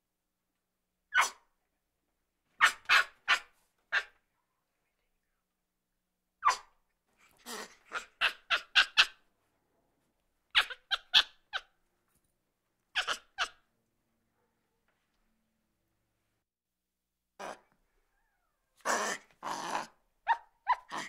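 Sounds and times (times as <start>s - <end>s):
monkey giving sharp high calls: 13.0s - 13.6s.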